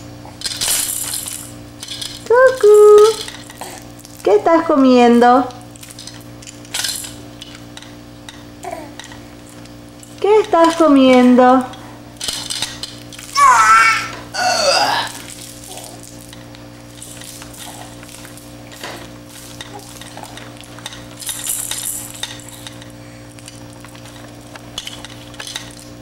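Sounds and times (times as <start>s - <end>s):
steady low hum: 0.0s - 26.0s
plastic toys clattering: 0.4s - 4.4s, 5.7s - 13.4s, 15.1s - 26.0s
baby squealing: 13.4s - 14.2s.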